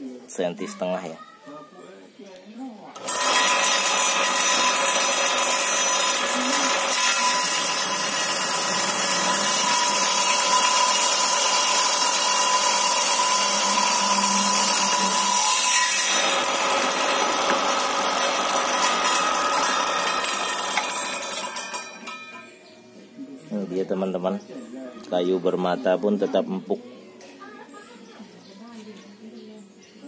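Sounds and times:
table saw cutting wood: 3.0s - 22.4s
table saw blade spinning free: 3.0s - 22.5s.

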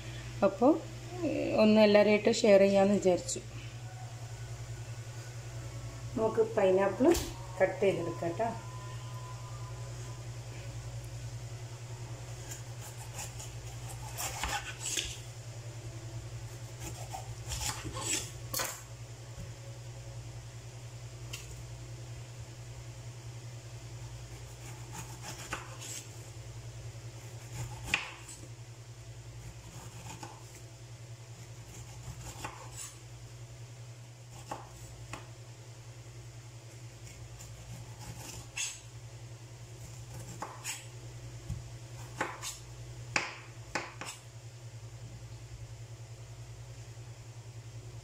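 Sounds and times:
steady low hum: 0.0s - 48.0s
knife slicing pineapple peel: 12.4s - 15.2s, 16.6s - 18.8s, 24.4s - 26.1s, 27.2s - 28.4s, 29.5s - 30.6s, 31.6s - 33.0s, 37.0s - 38.9s, 39.9s - 40.9s, 42.0s - 42.6s.

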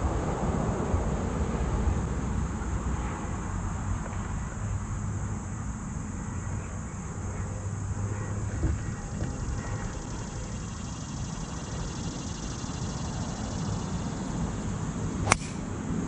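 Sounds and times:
faint hum: 0.0s - 16.0s.

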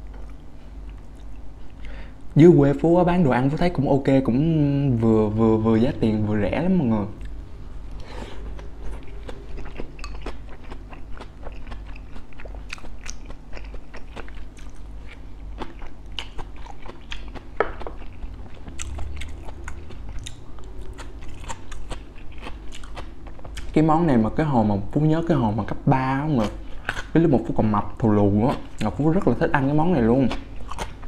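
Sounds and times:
chewing crunchy fried food: 0.0s - 2.0s, 7.1s - 24.0s, 26.1s - 31.0s.

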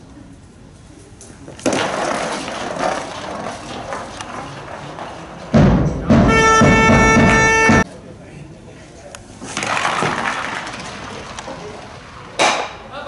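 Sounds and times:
ice stock scraping along lane: 1.6s - 5.6s
horn blowing steady note: 6.1s - 7.9s.

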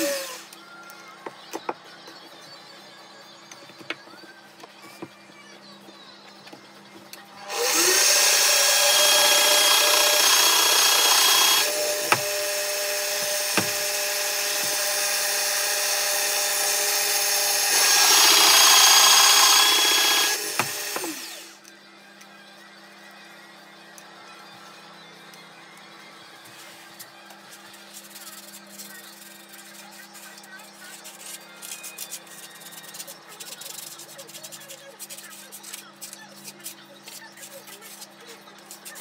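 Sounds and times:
pillar drill boring wood: 7.4s - 21.6s.

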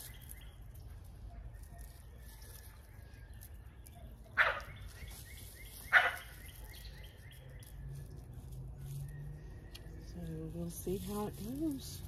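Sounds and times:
faint birds chirping: 0.0s - 12.0s
dog barking: 4.2s - 4.8s, 5.9s - 7.6s.

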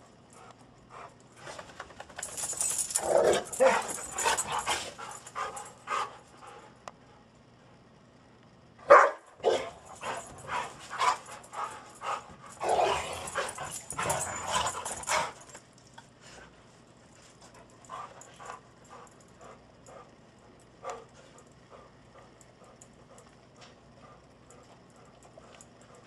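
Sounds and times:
dogs barking and yipping: 2.4s - 5.6s.

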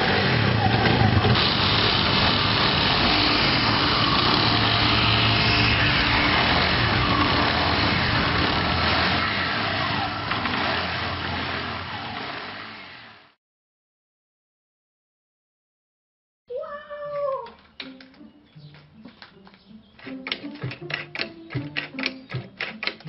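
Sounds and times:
scooter engine running: 0.0s - 13.2s.

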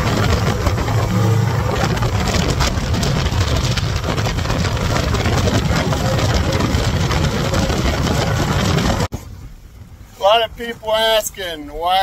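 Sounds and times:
outboard motors running at speed: 0.0s - 9.1s
wind and water rushing: 0.0s - 12.0s.

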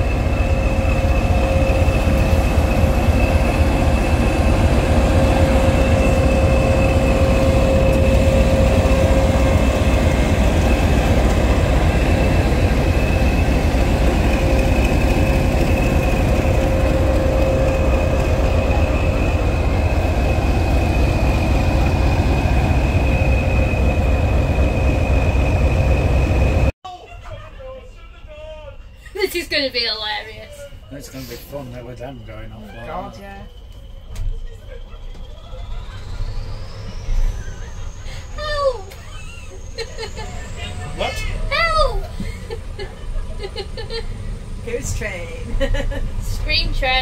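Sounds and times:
high-pitched whistle: 0.0s - 10.0s, 28.6s - 41.7s
diesel locomotive engine idling: 0.0s - 47.0s.

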